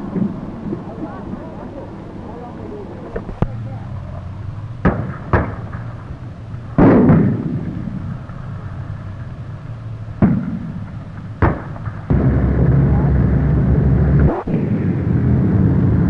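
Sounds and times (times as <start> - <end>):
low steady hum: 0.0 - 16.0
sharp gunshot reports: 4.8 - 6.0, 6.8 - 8.2, 10.2 - 15.4
heavy ringing blast: 10.2 - 16.0.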